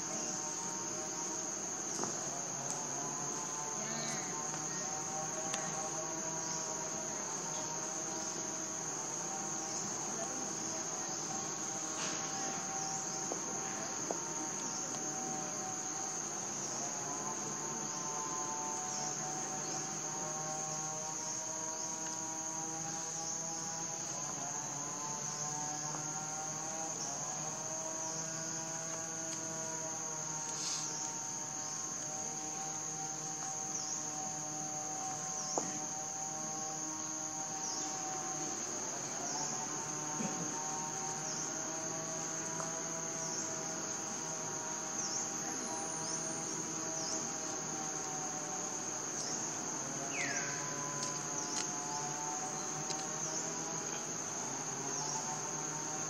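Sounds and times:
high insect chorus: 0.0s - 56.0s.

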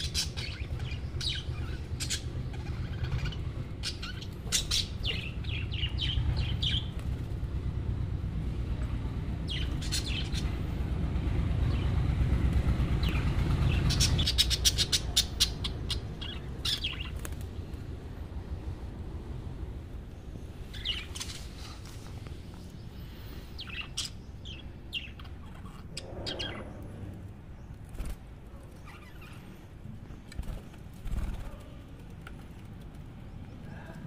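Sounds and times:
budgerigars chirping: 0.0s - 6.9s, 13.0s - 17.2s, 23.6s - 26.7s
low rumble: 0.0s - 21.2s, 24.5s - 27.9s.

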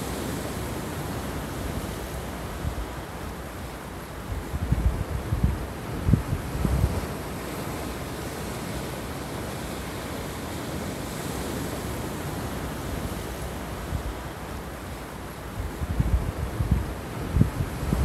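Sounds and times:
wind buffeting microphone: 4.2s - 9.7s, 15.5s - 18.0s.

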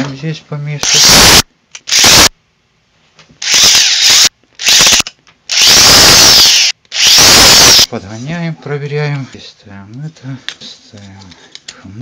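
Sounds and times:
cordless drill driving screw: 0.8s - 2.3s, 3.4s - 7.9s.

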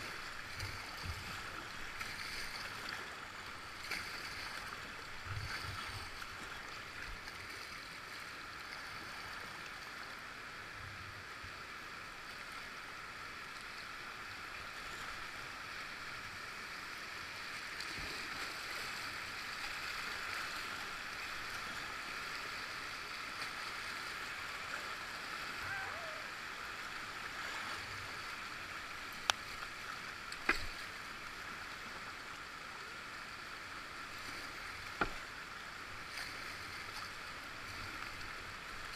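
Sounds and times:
river water rushing: 0.0s - 38.9s.

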